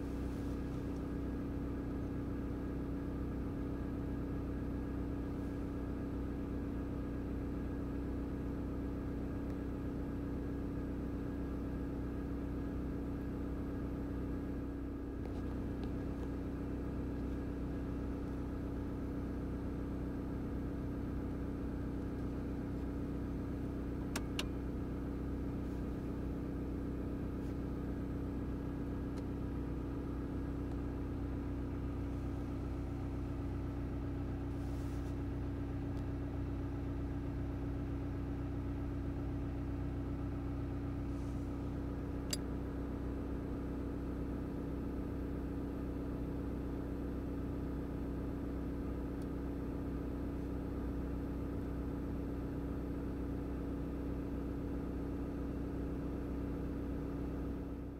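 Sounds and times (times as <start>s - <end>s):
car engine idling: 0.0s - 7.5s, 14.4s - 45.4s
faint click: 42.2s - 42.5s.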